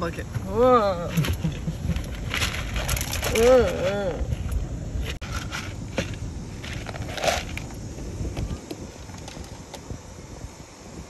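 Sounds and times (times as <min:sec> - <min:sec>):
zebra crunching feed from bucket: 0:01.1 - 0:07.8.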